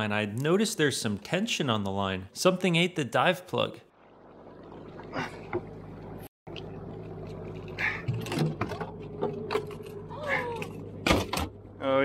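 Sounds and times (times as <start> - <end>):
outboard motor humming: 4.0 - 11.7.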